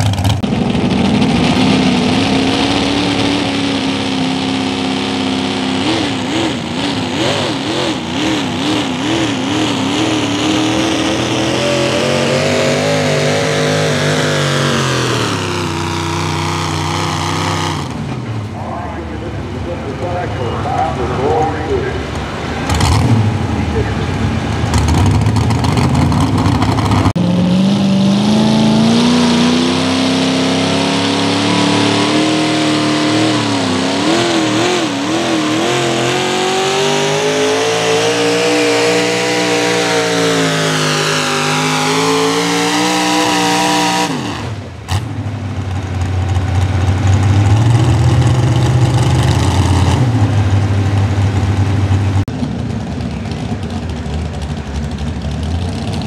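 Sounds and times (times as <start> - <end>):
high engine at full power: 0.0 - 56.0
lower engine running steadily: 17.3 - 27.2, 50.1 - 56.0.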